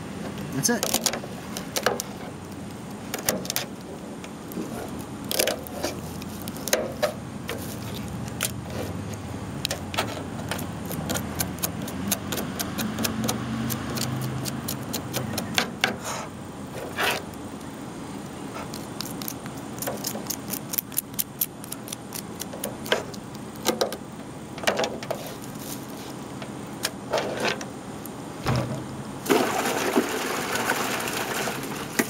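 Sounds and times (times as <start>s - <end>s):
knife scraping crab shell: 10.4s - 16.3s.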